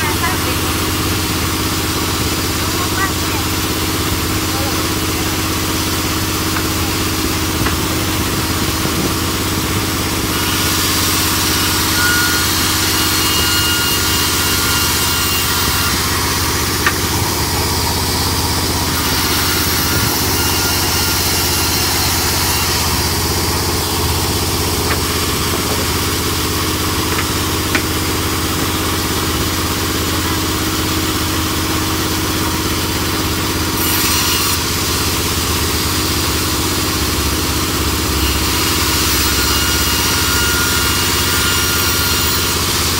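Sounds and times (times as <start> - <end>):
band saw ripping wood: 4.3 - 37.0.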